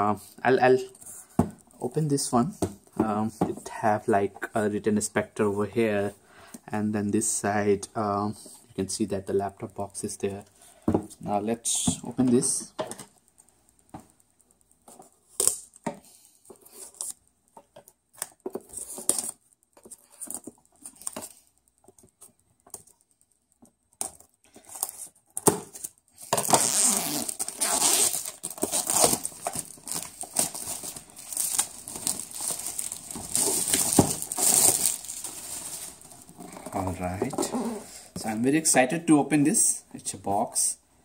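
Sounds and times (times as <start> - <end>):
plastic shrink-wrap crinkling: 24.4 - 37.8
plastic film tearing and crackling: 24.7 - 36.9.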